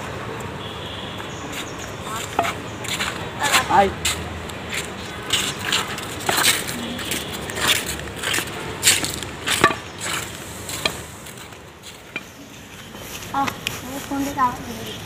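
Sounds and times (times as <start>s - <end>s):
footsteps crunching on ground: 1.1s - 15.0s.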